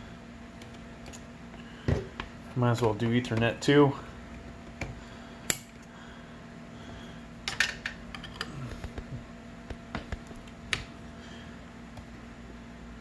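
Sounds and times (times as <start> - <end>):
cables handled clicks and knocks: 0.6 - 3.7, 7.5 - 10.9.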